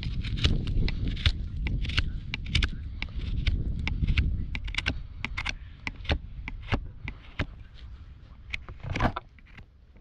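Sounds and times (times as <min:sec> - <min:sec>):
knife cutting hoof horn: 0:00.0 - 0:07.9
knife scraping hoof: 0:00.0 - 0:09.6.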